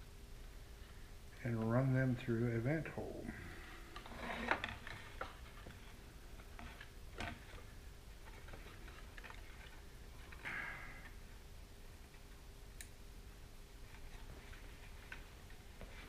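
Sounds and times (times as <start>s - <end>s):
scraping rustle: 3.8s - 10.5s.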